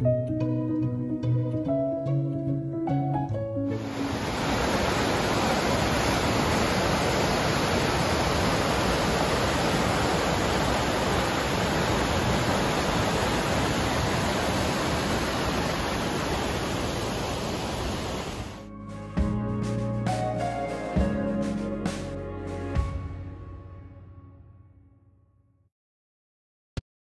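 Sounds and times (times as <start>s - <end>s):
water rushing over rocks: 3.8s - 18.6s.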